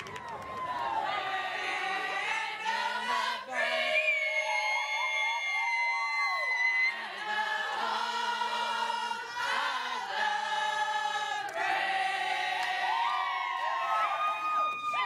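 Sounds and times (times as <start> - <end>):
whooping cheer: 0.0 - 1.2, 3.6 - 7.3, 12.6 - 15.0
group singing long notes: 0.0 - 15.0.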